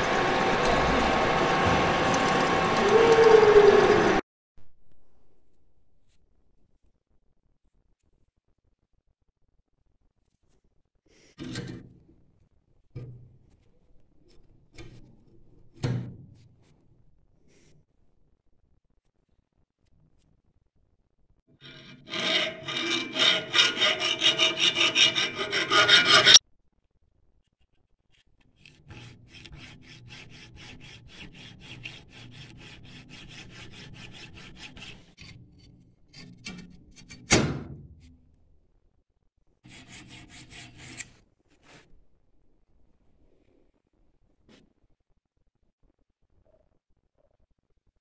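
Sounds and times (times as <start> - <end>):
hand file rasping on steel: 21.6 - 26.4, 28.6 - 35.5, 39.7 - 41.2
sharp scrape: 21.6 - 26.4.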